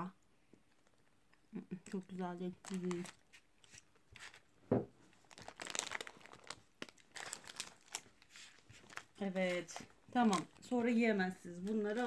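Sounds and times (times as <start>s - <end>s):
foil wrapper crinkling: 1.9s - 4.5s, 5.1s - 12.0s.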